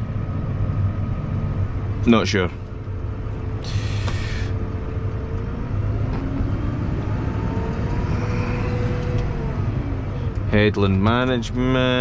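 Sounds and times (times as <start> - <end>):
tractor diesel engine running: 0.0 - 12.0
faint rising tone: 3.1 - 10.5.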